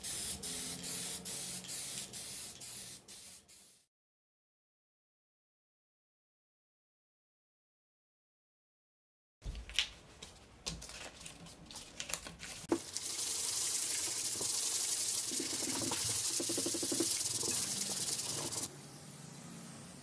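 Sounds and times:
aerosol can spraying: 0.0s - 3.9s, 12.7s - 18.7s.

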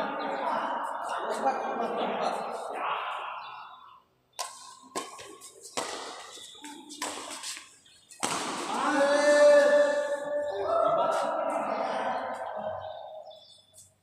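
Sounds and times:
racket hitting shuttlecock: 4.4s - 10.5s.

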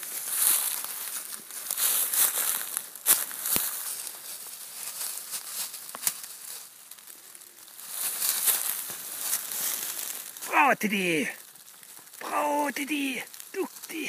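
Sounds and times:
footsteps crunching through dry leaves: 0.0s - 10.4s
twigs brushing and snapping: 0.0s - 10.5s, 11.4s - 12.2s, 13.3s - 13.9s.

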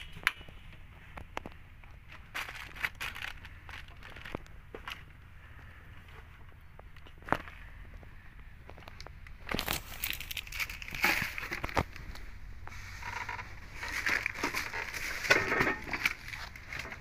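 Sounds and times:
plastic packaging crinkling: 2.2s - 4.5s, 9.4s - 12.2s, 13.0s - 17.0s.

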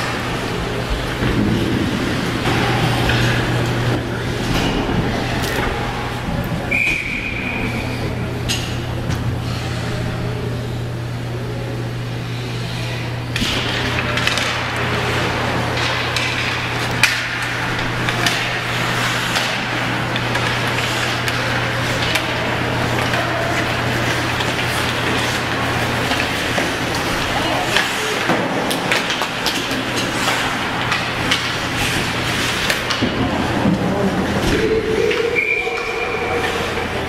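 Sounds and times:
steady low hum: 0.0s - 37.0s
hockey sticks knocking: 13.4s - 36.8s.

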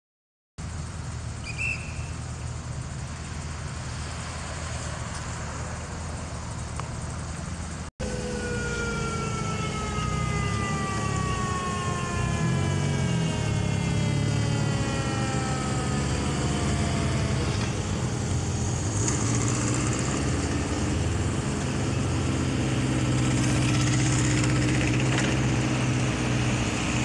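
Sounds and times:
low engine hum: 0.6s - 27.0s
motorcycle engine approaching: 3.1s - 27.0s
siren sliding down in pitch: 8.0s - 19.0s.

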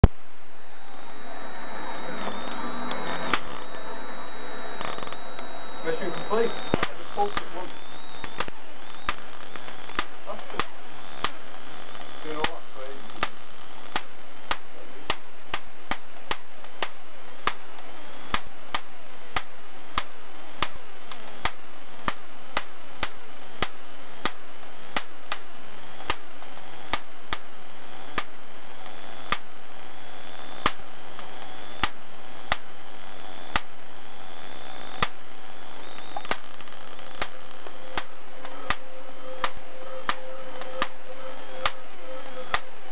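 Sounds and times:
steady hiss: 0.0s - 42.9s
high-voltage sparks cracking: 0.6s - 29.5s, 34.3s - 38.8s.

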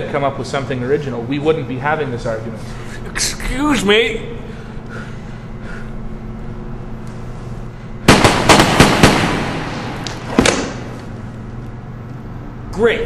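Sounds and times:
pistol shots echoing: 8.1s - 11.0s.

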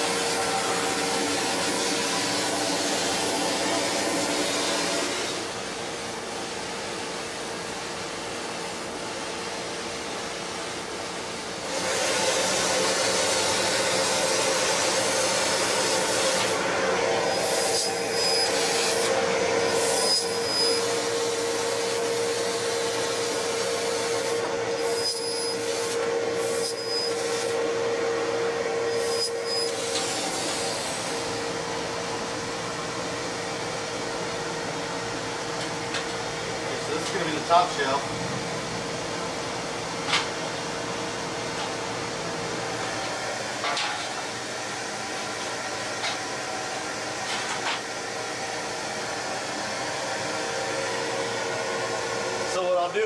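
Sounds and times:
machine hum: 0.0s - 52.6s
laser cutter hissing: 11.7s - 27.7s, 28.9s - 31.5s.

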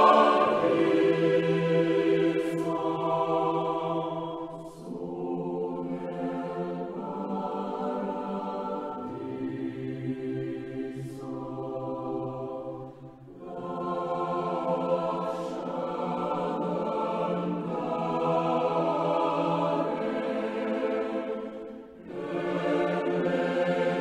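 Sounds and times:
choir singing sustained chords: 0.0s - 24.0s.

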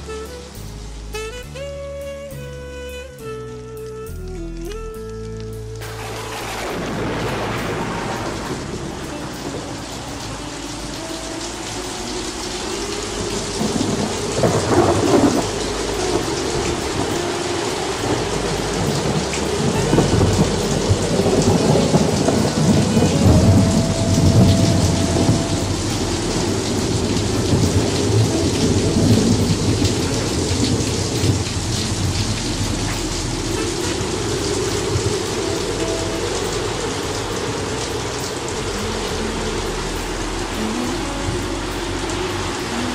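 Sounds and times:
steady rain: 0.0s - 42.9s
rolling thunder: 5.8s - 38.0s.

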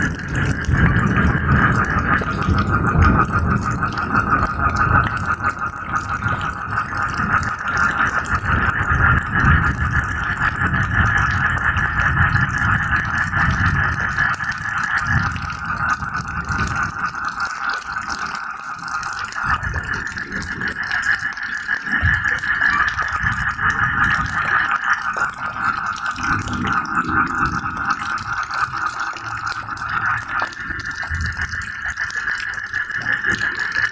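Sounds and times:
low rumble of thunder: 0.0s - 18.1s
frogs trilling: 0.0s - 33.9s
rain hissing: 0.0s - 33.9s.

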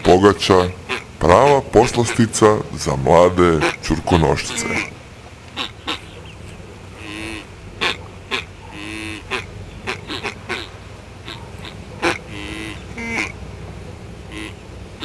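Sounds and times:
nasal animal calls: 3.5s - 13.4s.

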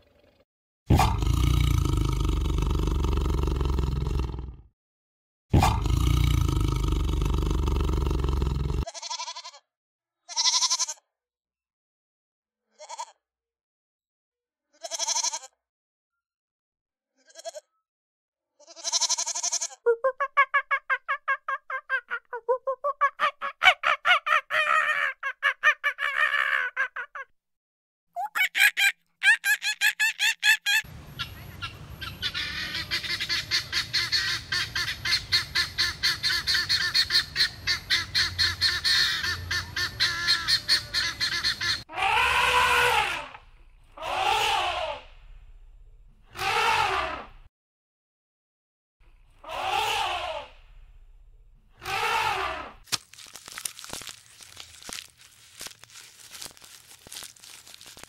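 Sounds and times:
animal calls: 28.2s - 43.4s, 46.3s - 47.3s, 51.8s - 52.8s.

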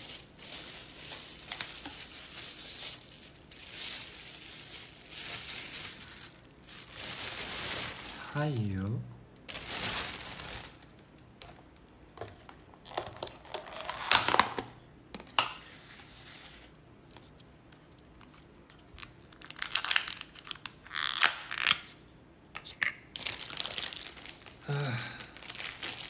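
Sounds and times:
plastic packaging crinkling: 0.0s - 8.9s, 9.5s - 11.2s, 18.0s - 21.9s, 23.1s - 26.0s.

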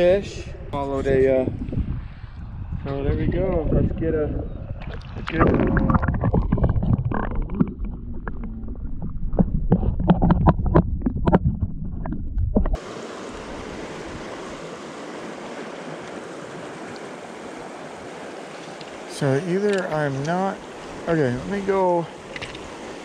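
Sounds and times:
wind rumble and microphone handling: 0.0s - 23.0s
river rushing: 12.8s - 23.0s.

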